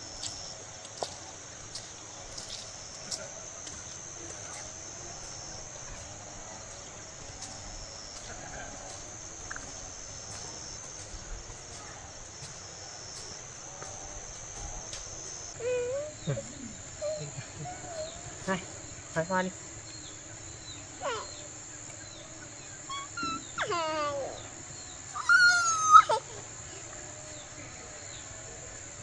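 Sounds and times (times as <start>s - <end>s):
insects chirring: 0.0s - 29.0s.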